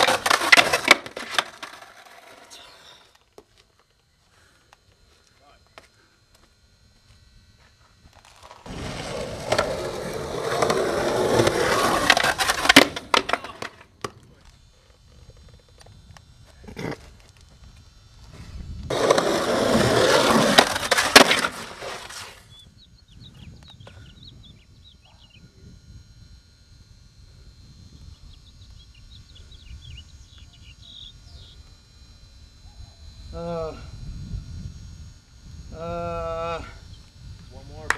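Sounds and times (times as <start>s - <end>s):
skateboard clacks and scrapes: 0.0s - 2.8s, 8.4s - 14.2s, 18.9s - 22.4s
skateboard wheels rolling on concrete: 0.0s - 4.0s, 5.8s - 15.9s, 18.9s - 22.5s
bird chirping: 2.5s - 3.1s, 22.4s - 25.5s, 28.1s - 31.7s.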